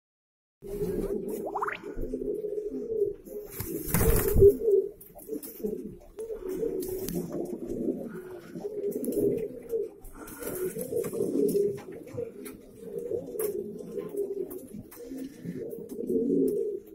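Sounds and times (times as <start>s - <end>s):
pigeons cooing: 0.6s - 16.9s
wings flapping: 3.3s - 7.5s.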